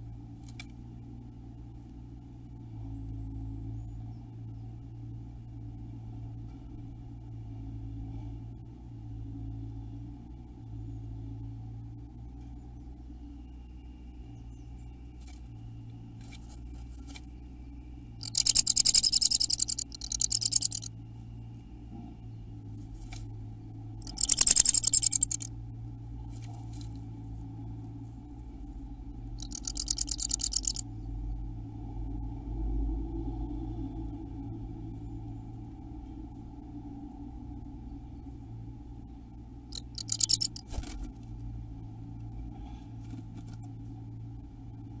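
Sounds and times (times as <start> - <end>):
bird rattling chatter: 18.2 - 20.9, 24.0 - 25.5, 29.4 - 30.8, 39.7 - 40.8
bird scratching on nest: 18.2 - 20.9, 24.0 - 25.5, 29.4 - 30.8, 39.8 - 41.0.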